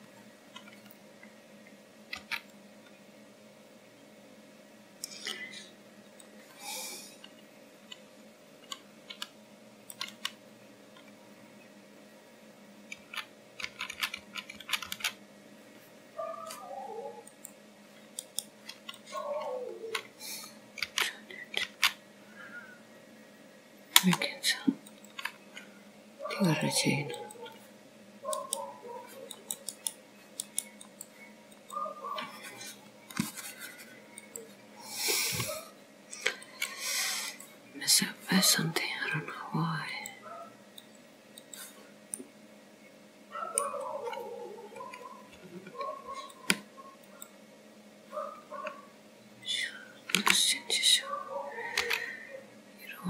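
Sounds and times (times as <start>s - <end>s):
faint steady hum: 0.0s - 53.0s
computer keys and mouse clicking: 2.1s - 2.6s, 8.6s - 11.2s, 12.9s - 15.2s, 17.2s - 20.1s, 20.8s - 22.0s, 29.2s - 32.3s, 33.0s - 34.5s
keyboard keys clicking: 9.9s - 10.4s, 12.9s - 15.2s.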